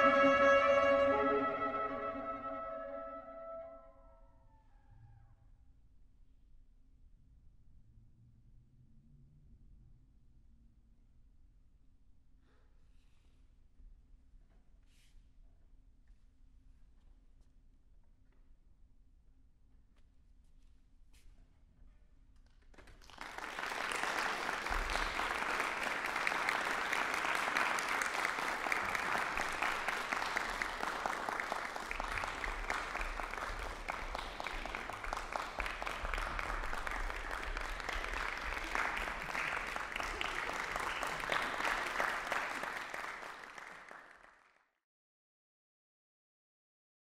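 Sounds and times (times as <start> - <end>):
audience applauding: 0.0 - 2.8, 22.7 - 44.5.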